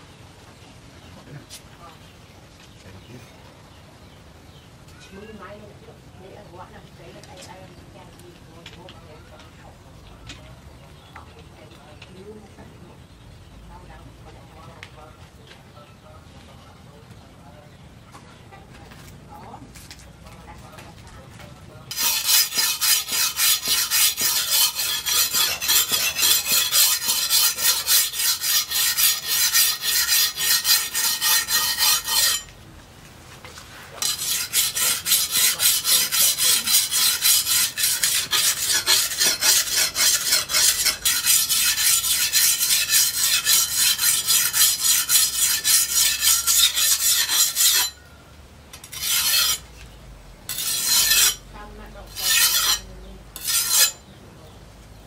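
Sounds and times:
steel blade on whetstone strokes: 21.9s - 32.5s, 34.0s - 48.0s, 48.8s - 49.6s, 50.5s - 51.4s, 52.1s - 54.0s.

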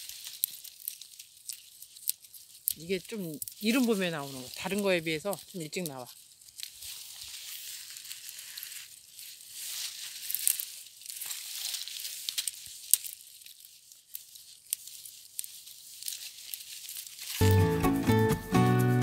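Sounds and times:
twigs snapping: 0.0s - 17.4s
twigs rustling and crackling: 0.0s - 17.7s.

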